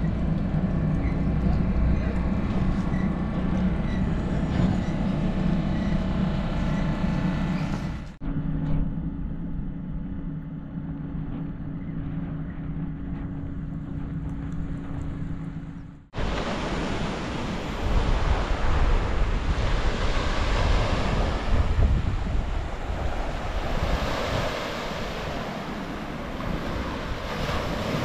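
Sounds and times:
engine hum: 0:00.0 - 0:28.0
wind buffeting microphone: 0:11.2 - 0:28.0
surf: 0:16.2 - 0:28.0.

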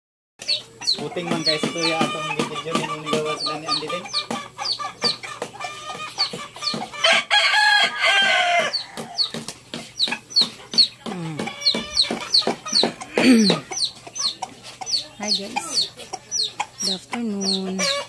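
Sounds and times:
chickens clucking: 0:00.4 - 0:18.0
rooster crowing: 0:07.0 - 0:09.3.

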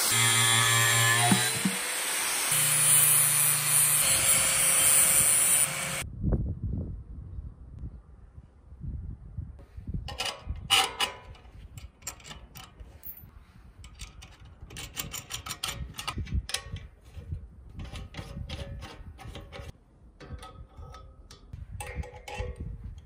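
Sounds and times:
metal fittings clinking on metal: 0:19.3 - 0:22.7.

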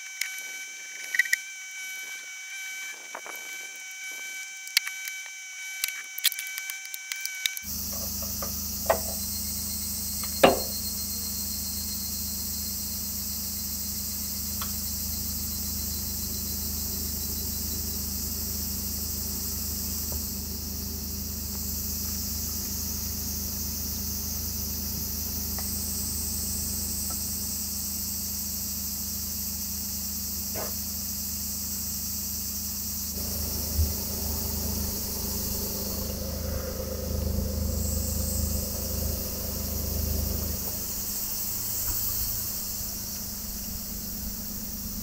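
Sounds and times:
insects chirping: 0:00.0 - 0:45.0
knocks: 0:10.4 - 0:10.8
low steady hum: 0:33.1 - 0:45.0.

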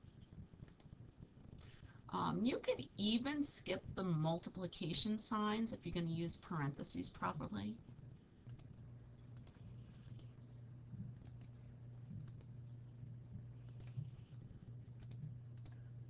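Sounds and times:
low steady hum: 0:00.0 - 0:16.0
computer mouse clicks: 0:00.6 - 0:00.9, 0:08.5 - 0:08.7, 0:09.3 - 0:10.6, 0:11.2 - 0:12.5, 0:13.6 - 0:14.4, 0:15.0 - 0:15.8.

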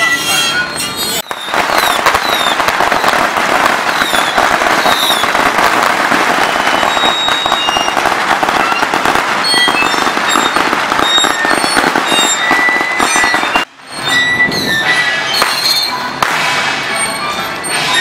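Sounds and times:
firecrackers crackling: 0:01.0 - 0:14.1, 0:14.9 - 0:18.0
short high whistles: 0:06.6 - 0:08.0, 0:09.5 - 0:16.1.

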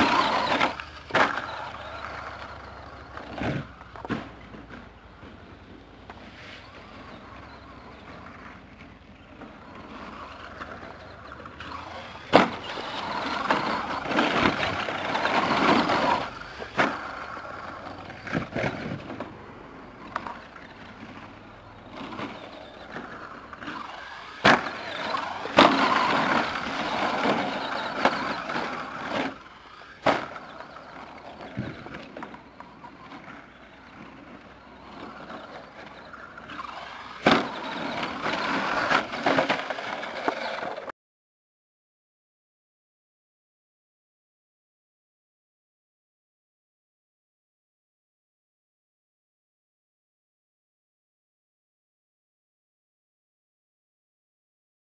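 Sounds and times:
tyres on loose dirt: 0:00.0 - 0:40.9
electric motor whine: 0:22.1 - 0:33.8.

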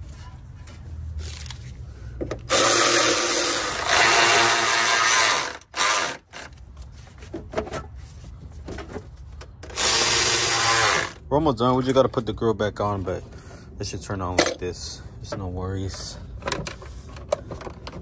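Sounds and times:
cordless power tool running: 0:02.5 - 0:06.2, 0:09.8 - 0:11.2.

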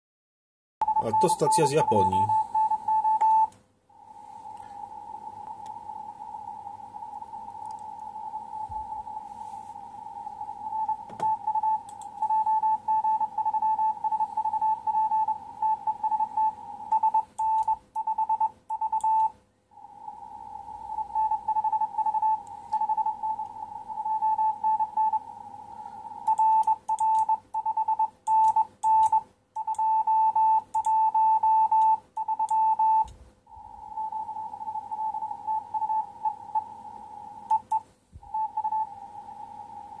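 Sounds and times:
morse code beeps: 0:00.8 - 0:03.5, 0:10.7 - 0:19.3, 0:21.1 - 0:25.2, 0:26.2 - 0:33.1, 0:33.9 - 0:36.8, 0:37.5 - 0:38.9.

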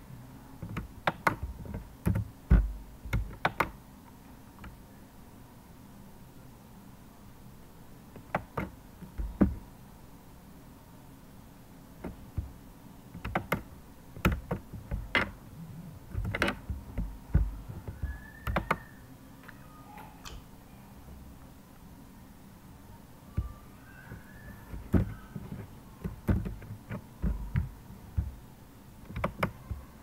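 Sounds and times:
keyboard keys tapping: 0:00.6 - 0:03.8, 0:08.2 - 0:09.6, 0:13.2 - 0:15.4, 0:16.1 - 0:18.8, 0:23.4 - 0:28.4, 0:29.0 - 0:30.0.

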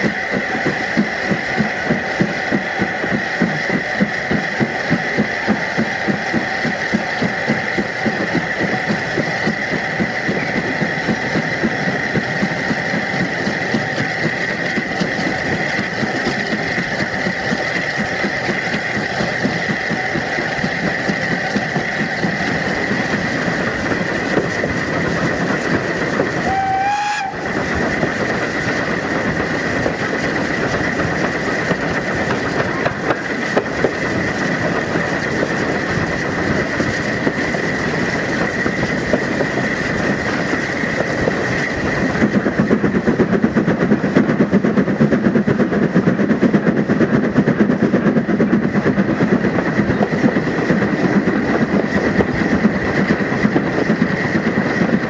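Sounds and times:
steady steam hiss: 0:00.0 - 0:53.3
steam locomotive exhaust beats: 0:00.0 - 0:55.0
locomotive whistle: 0:26.3 - 0:27.6.

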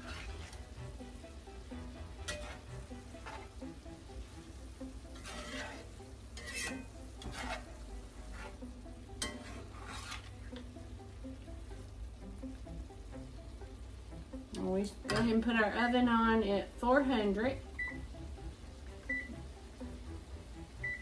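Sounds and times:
metal turner scraping skillet: 0:00.0 - 0:00.8, 0:02.0 - 0:03.8, 0:05.1 - 0:10.7
low sizzle from pan: 0:00.0 - 0:21.0.

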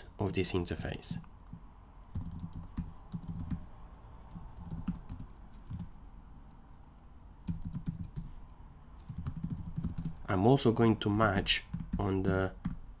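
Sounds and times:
typing on computer keyboard: 0:01.4 - 0:05.9, 0:06.9 - 0:10.3, 0:11.0 - 0:13.0.

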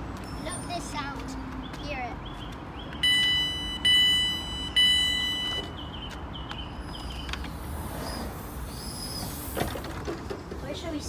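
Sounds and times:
train door warning beeps: 0:03.0 - 0:05.8.

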